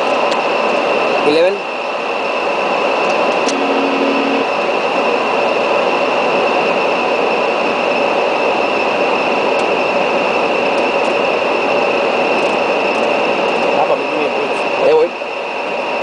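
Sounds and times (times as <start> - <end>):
constant high-pitched whine: 0.0 - 16.0.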